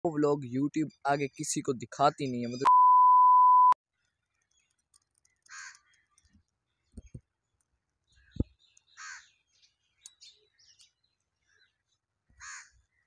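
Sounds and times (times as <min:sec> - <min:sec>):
crow cawing: 0:05.5 - 0:05.9, 0:09.0 - 0:09.3, 0:12.3 - 0:13.0.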